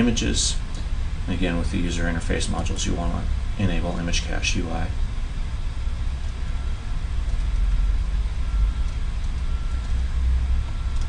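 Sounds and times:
low rumble with faint hiss: 0.0s - 11.0s.

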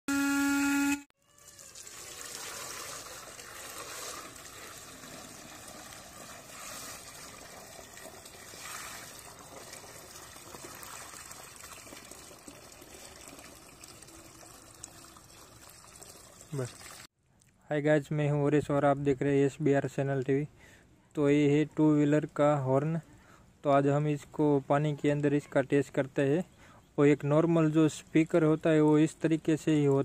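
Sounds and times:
electric horn blare: 0.1s - 1.1s
water splashing into plastic tub: 1.5s - 17.1s.

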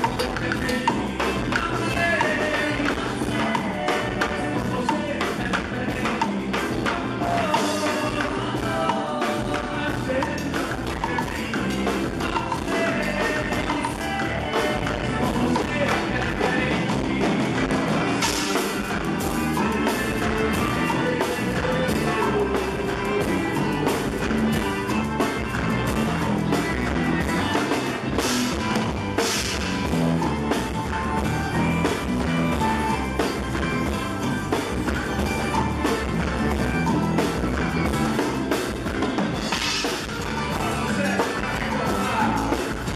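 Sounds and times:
drum kit steady beat: 0.0s - 42.9s
keyboard: 0.0s - 42.9s
live band music: 0.0s - 42.9s.

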